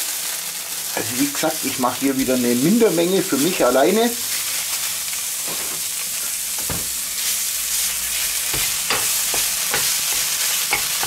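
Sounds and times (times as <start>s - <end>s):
meat sizzling in a frying pan: 0.0s - 11.0s
wooden spatula knocking on pan: 8.5s - 11.0s.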